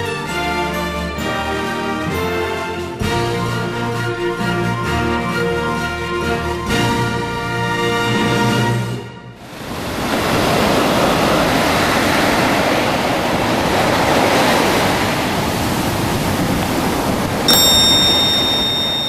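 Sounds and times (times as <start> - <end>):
surf washing on a beach: 9.4 - 19.0
bright high chime: 17.5 - 19.0.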